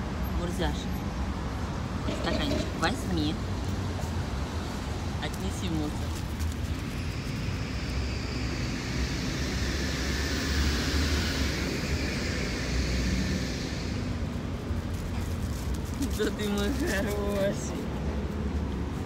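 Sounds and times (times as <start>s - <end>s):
passing vehicle engine and rushing: 0.0s - 19.0s.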